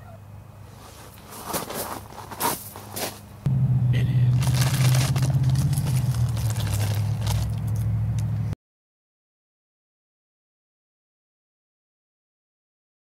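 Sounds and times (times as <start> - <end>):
low rumble with crackling: 0.7 - 8.6.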